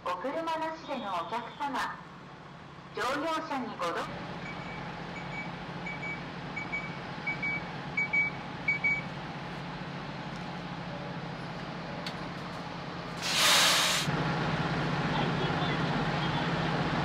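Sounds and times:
bus engine humming: 0.9s - 17.0s
compressed-air hiss: 13.2s - 14.1s.

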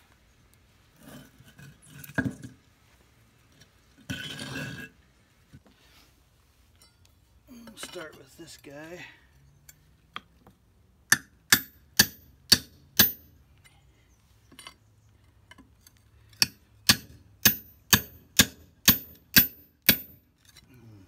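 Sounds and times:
hammer striking steel bar: 11.1s - 13.3s, 16.4s - 20.2s.

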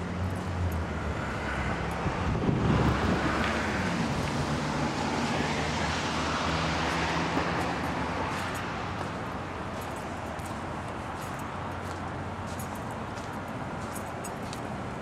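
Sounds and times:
low engine hum: 0.0s - 15.0s
tyres on slushy road: 0.0s - 15.0s.

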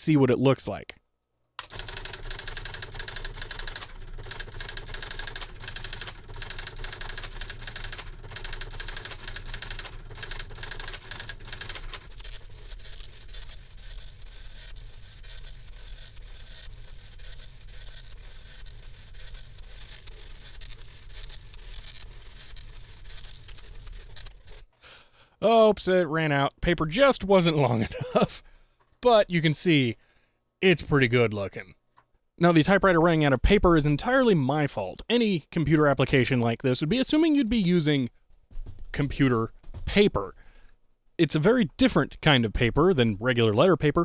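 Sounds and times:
typewriter print-hammer clicks: 1.6s - 24.3s
typewriter carriage moving: 1.6s - 24.6s
steady low hum: 1.6s - 25.3s.

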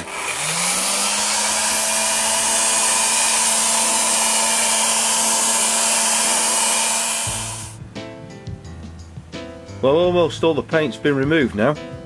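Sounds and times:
hot air gun blowing: 0.0s - 7.8s.

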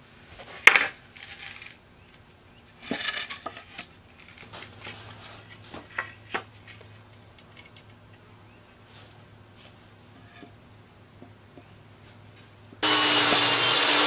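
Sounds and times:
wood scraping on concrete: 0.4s - 1.8s, 2.8s - 7.9s
wooden board clacking on concrete: 0.6s - 1.6s.

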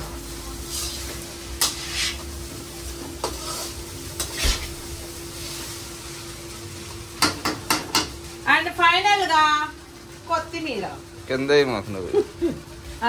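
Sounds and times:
rice sizzling: 0.0s - 13.0s
ladle scraping a wok: 0.6s - 2.3s, 3.2s - 5.8s.

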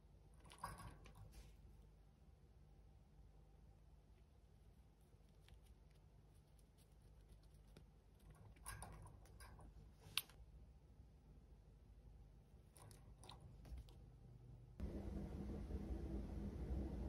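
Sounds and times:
bird clicks and rustles: 0.4s - 1.7s, 5.2s - 10.4s.

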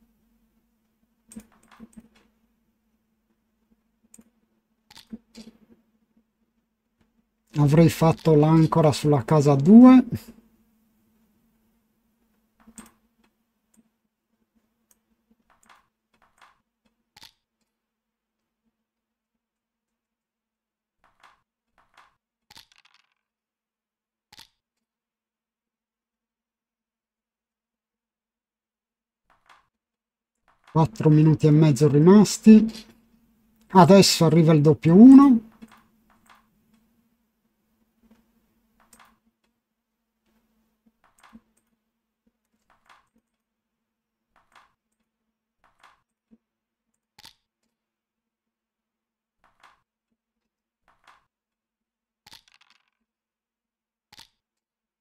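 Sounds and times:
faint steady hum: 0.0s - 19.1s, 30.8s - 42.5s
dice rattle clicks: 21.0s - 23.2s, 52.3s - 53.0s.

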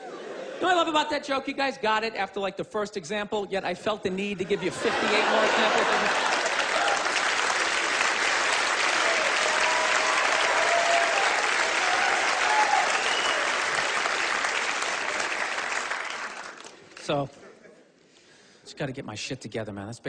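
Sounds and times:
audience applauding: 4.9s - 17.1s.

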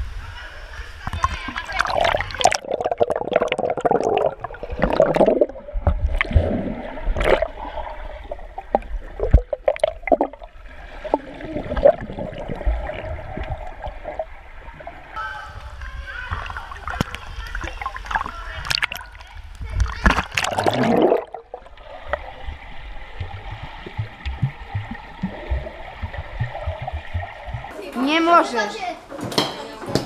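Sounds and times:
muffled underwater gurgling: 1.1s - 15.2s, 19.7s - 27.7s.

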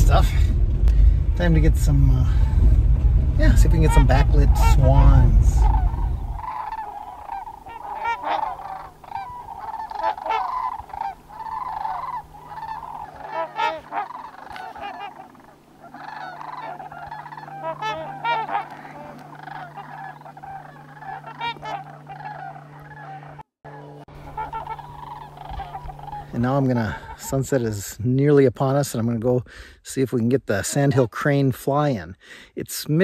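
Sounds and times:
swans honking: 3.7s - 27.7s.

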